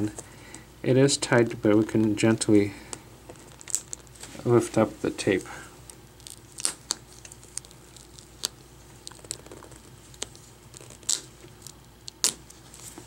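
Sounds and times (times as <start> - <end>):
tape peeling crackles: 3.3 - 4.9, 5.8 - 13.0.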